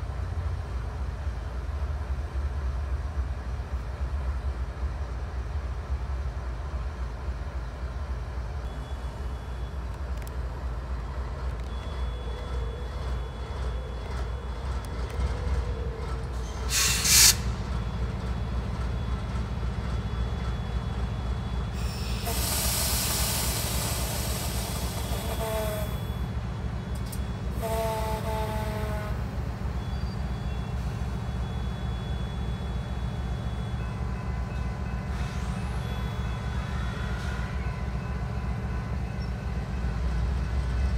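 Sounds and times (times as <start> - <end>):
diesel locomotive engine rumble: 0.0 - 40.9
air hissing: 16.7 - 17.5, 21.8 - 25.8
sharp blast of air: 16.7 - 17.5
locomotive horn: 25.0 - 26.2, 27.5 - 29.4.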